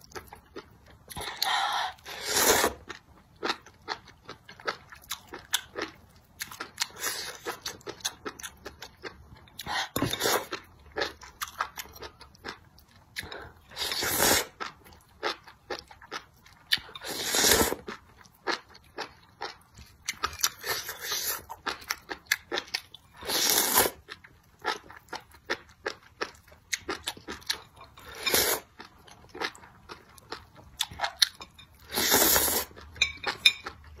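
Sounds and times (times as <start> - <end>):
slurping: 1.1 - 2.9, 23.2 - 24.0, 31.8 - 32.8
chewing and crunching: 2.7 - 17.1, 17.7 - 34.0.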